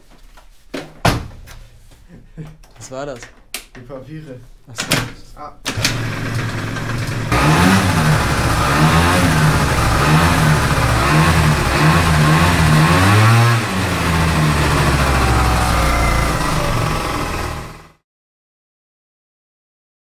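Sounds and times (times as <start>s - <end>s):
scooter engine revving: 5.7s - 18.0s.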